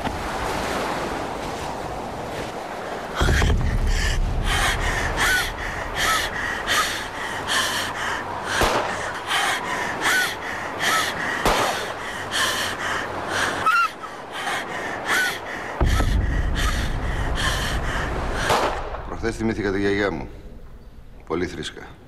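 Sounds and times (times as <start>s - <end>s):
person panting hard: 3.3s - 13.6s, 14.4s - 18.6s.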